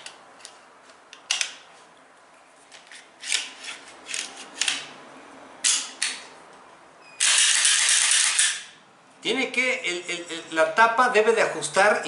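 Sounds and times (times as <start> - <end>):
pistol slide scraping and clicking: 2.7 - 5.0, 5.6 - 6.3, 7.2 - 8.8.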